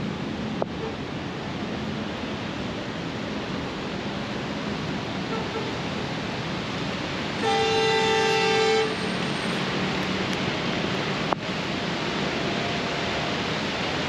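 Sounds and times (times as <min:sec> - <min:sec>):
heavy rain pouring: 0:00.0 - 0:14.0
vehicle horn honk: 0:07.4 - 0:09.0.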